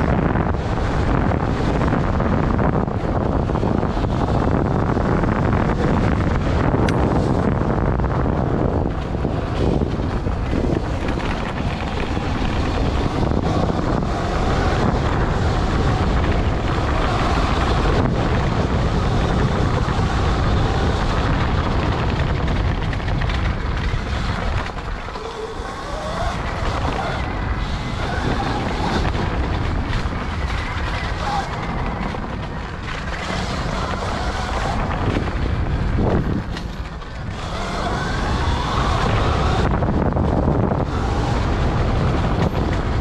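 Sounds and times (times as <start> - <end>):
pit bike engine running: 0.0 - 43.0
wind rushing over microphone: 0.0 - 43.0.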